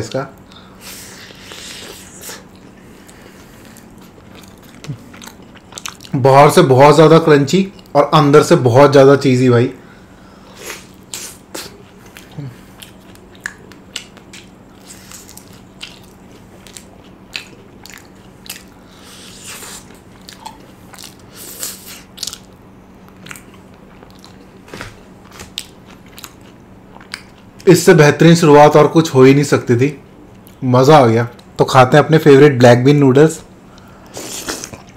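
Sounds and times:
crisp chewing crunches: 1.3s - 6.2s, 10.6s - 27.6s.

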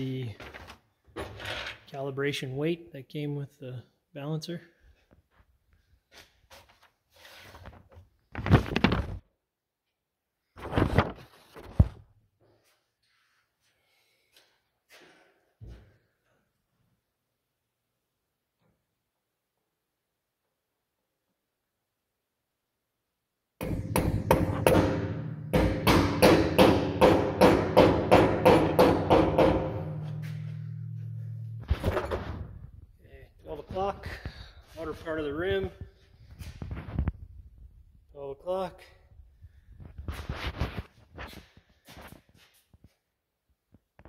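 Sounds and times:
hammer tapping metal: 23.6s - 31.7s
sharp knock: 23.6s - 32.2s
low steady hum: 29.6s - 33.7s.

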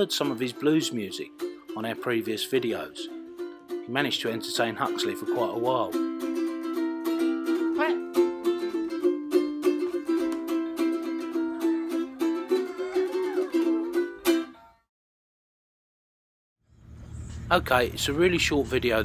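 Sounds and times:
ukulele strumming chords: 0.0s - 14.8s.

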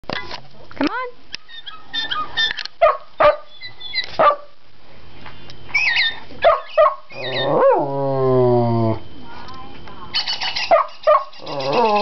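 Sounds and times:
dog barking: 2.8s - 3.5s, 4.2s - 4.5s, 6.0s - 7.4s, 10.7s - 12.0s
bird calls from a speaker: 3.2s - 4.2s, 5.7s - 7.6s, 10.1s - 12.0s.

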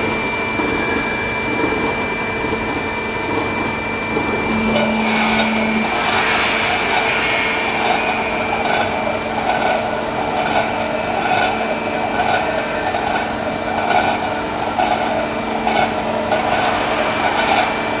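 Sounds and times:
steady machine noise: 3.2s - 18.0s
rhythmic machine pulse: 4.1s - 18.0s
high steady tone: 4.2s - 9.9s.

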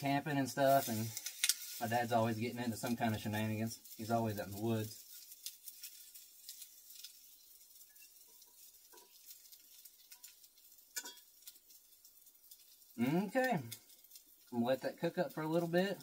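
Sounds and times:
fire clicks and crackles: 0.0s - 16.0s
food sizzling in a pan: 0.0s - 16.0s.

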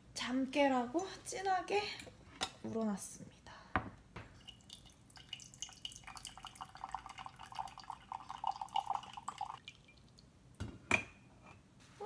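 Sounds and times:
coffee dripping: 4.3s - 10.3s
coffee pouring into a mug: 4.4s - 10.1s.

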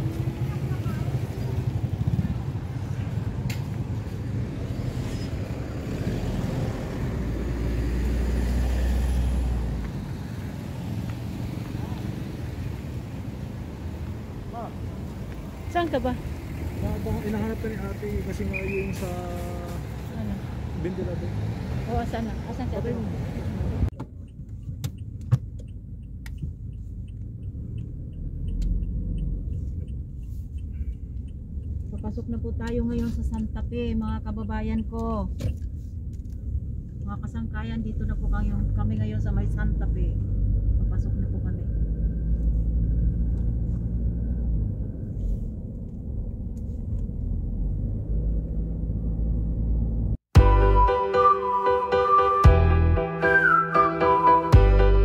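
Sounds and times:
vehicle engine passing: 0.0s - 23.9s
street noise: 0.0s - 55.0s
traffic noise: 0.0s - 55.0s
faint regular ticking: 24.2s - 35.8s.

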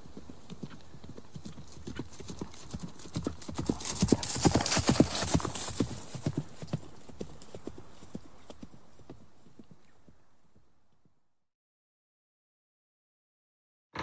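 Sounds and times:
horse hooves clip-clopping: 0.0s - 10.7s.

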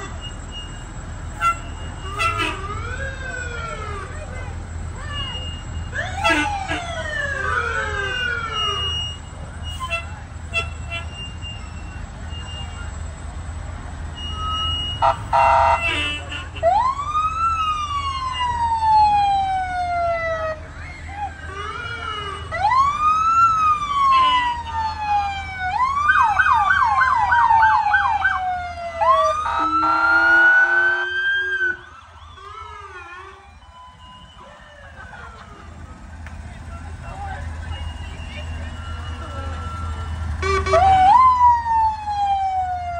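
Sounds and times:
emergency vehicle siren: 0.0s - 42.9s
low engine rumble: 0.0s - 42.9s
horn blast: 29.5s - 31.3s.

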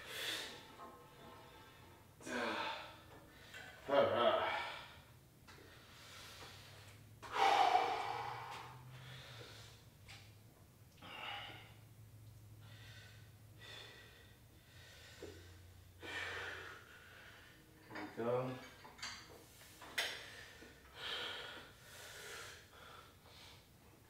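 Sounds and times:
man breathing hard: 2.2s - 3.8s, 4.4s - 10.0s, 11.0s - 11.8s, 12.6s - 17.7s, 19.6s - 23.8s.

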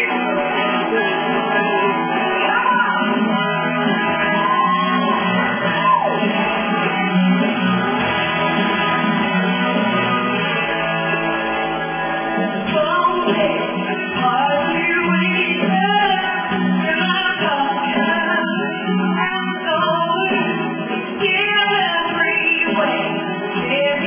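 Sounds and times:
backing music with guitar: 0.0s - 24.0s
woman singing into microphone: 12.6s - 24.0s.

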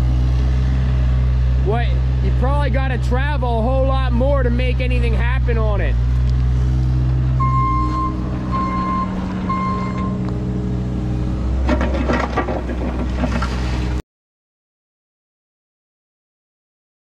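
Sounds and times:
excavator diesel engine running: 0.0s - 14.0s
travel alarm beeping: 7.4s - 10.2s
bucket grinding through gravel: 11.6s - 14.0s.

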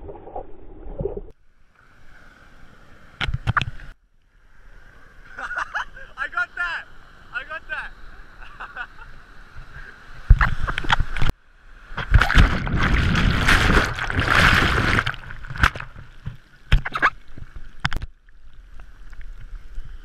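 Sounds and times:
surf churning against camera: 5.3s - 17.1s
water splashes: 9.2s - 20.0s.

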